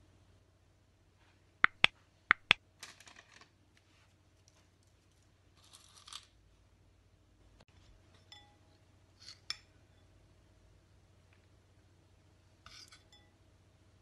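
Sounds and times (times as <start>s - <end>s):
sharp clicks: 1.7s - 2.6s.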